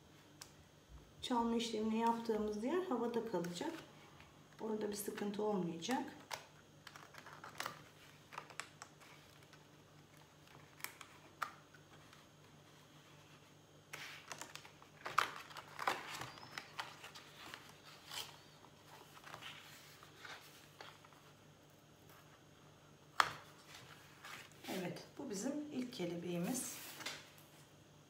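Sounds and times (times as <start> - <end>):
paper rustling: 6.8 - 21.4, 23.2 - 25.0.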